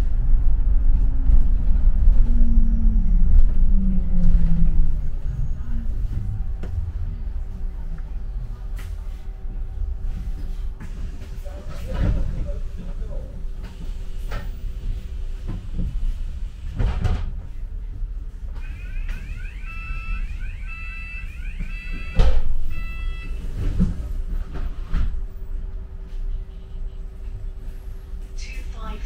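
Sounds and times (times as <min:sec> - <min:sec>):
bus engine and road rumble: 0:00.0 - 0:29.0
repeated electronic beep: 0:18.6 - 0:23.4.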